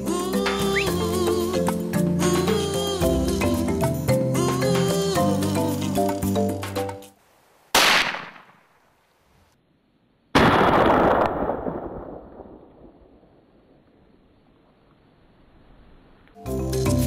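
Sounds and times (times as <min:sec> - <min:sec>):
rifle shots: 0:07.8 - 0:08.8, 0:10.4 - 0:13.2.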